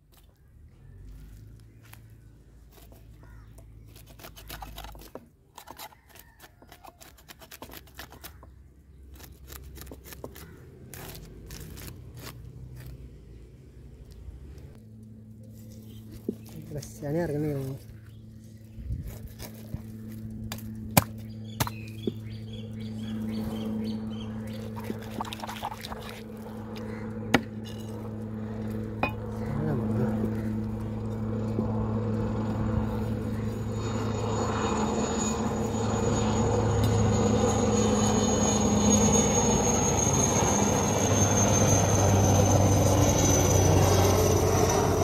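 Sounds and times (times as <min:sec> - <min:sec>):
engine drone: 0:07.9 - 0:45.0
thin high whine: 0:22.7 - 0:44.9.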